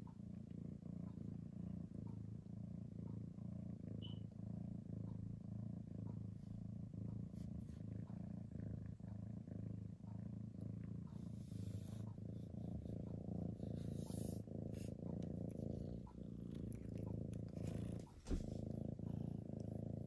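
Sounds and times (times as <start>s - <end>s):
cat purring: 0.0s - 20.0s
soft rustle: 11.1s - 18.9s.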